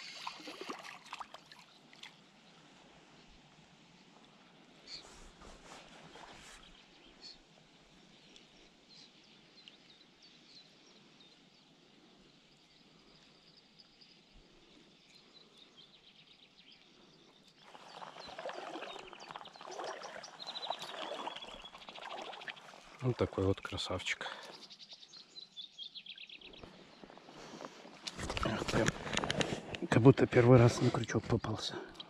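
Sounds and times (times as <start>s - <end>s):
faint birds chirping: 1.4s - 32.0s
riverside ambience: 26.6s - 32.0s.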